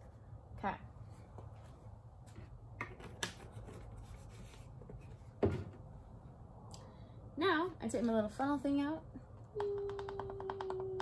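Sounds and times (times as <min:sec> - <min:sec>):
low steady hum: 0:00.0 - 0:11.0
knocks and clunks handling things: 0:02.3 - 0:05.9.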